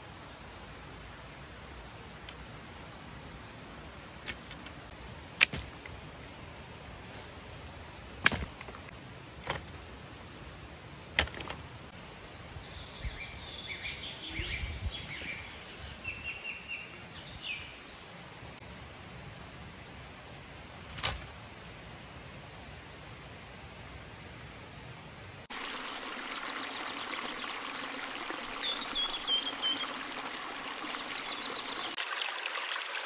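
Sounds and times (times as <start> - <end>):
branches clattering: 8.2 - 11.8.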